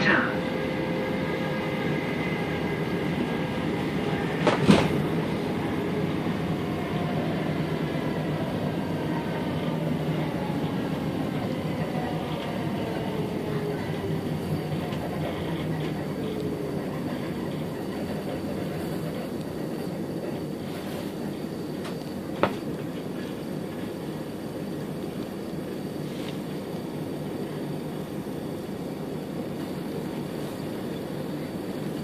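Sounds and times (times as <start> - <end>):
train rumble on rails: 0.0 - 32.0
sharp clunk: 4.4 - 5.0.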